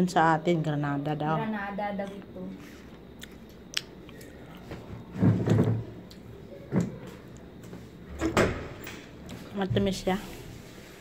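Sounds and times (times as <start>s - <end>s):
person chewing hard seeds: 2.8s - 4.7s.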